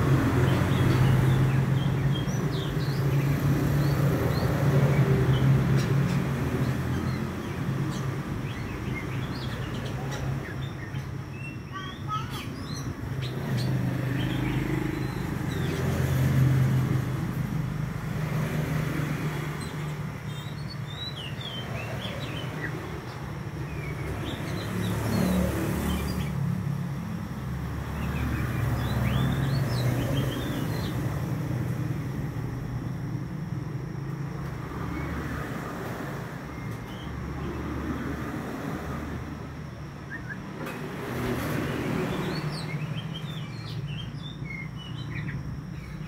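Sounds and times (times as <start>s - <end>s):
bird chirping: 0.0s - 17.3s, 18.9s - 26.5s, 27.8s - 31.5s, 40.0s - 40.6s, 41.2s - 46.0s.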